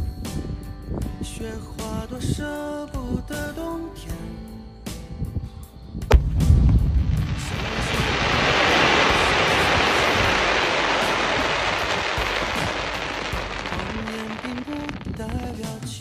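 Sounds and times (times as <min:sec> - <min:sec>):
music: 0:00.0 - 0:16.0
firework crackling: 0:06.1 - 0:16.0.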